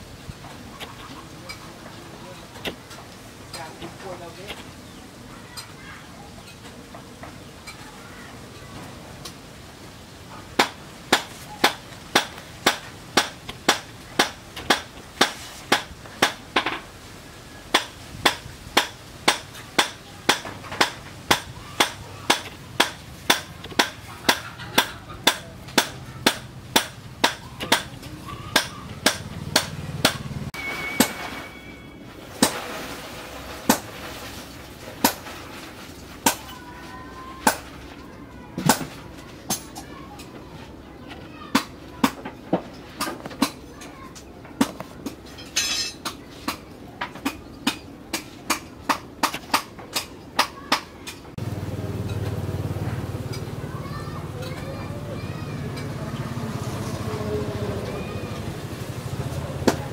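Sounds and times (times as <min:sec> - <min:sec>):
hammer on metal: 0:17.7 - 0:30.3.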